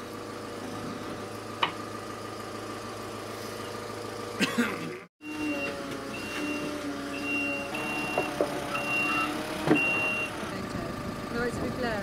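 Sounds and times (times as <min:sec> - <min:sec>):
diesel engine running: 0:00.0 - 0:12.0
warning alarm beeps: 0:05.2 - 0:10.4.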